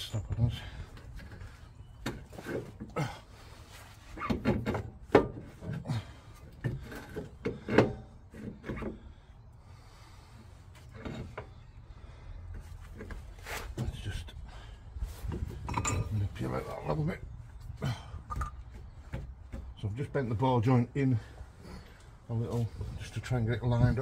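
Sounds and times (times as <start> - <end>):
metal parts knocking and clunking: 4.2 - 9.0, 15.3 - 16.4.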